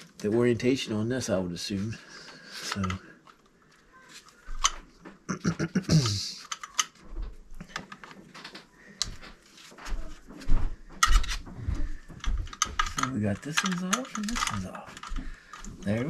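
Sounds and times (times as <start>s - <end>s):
screwdriver clicking on screws: 12.5s - 15.7s.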